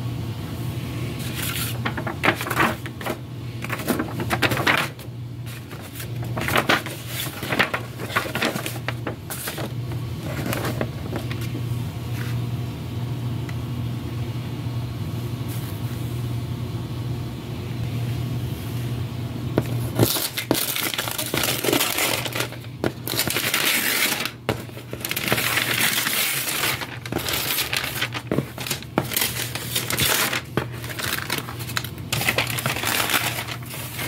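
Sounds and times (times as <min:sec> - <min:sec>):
steady low hum: 0:00.0 - 0:34.0
paper rustling and crinkling: 0:01.2 - 0:12.4, 0:19.6 - 0:34.0.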